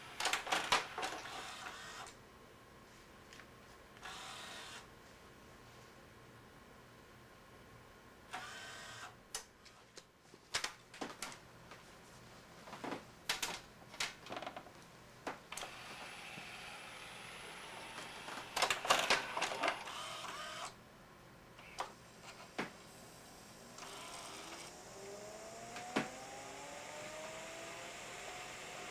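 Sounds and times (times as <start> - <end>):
small motors whirring: 1.2 - 2.2, 4.0 - 4.8, 15.6 - 18.6, 19.8 - 20.7, 23.7 - 28.9.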